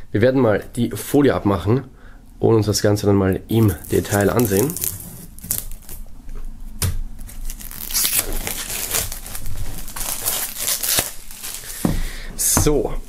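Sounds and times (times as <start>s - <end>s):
plastic film crinkling and tearing: 3.5s - 6.0s, 7.2s - 11.9s.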